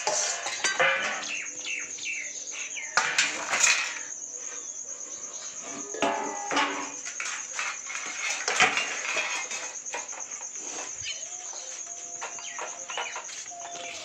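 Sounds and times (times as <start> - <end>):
metal pots clattering: 0.0 - 1.9, 2.9 - 4.1, 5.6 - 11.0, 12.2 - 14.0
crickets chirping: 0.0 - 14.0.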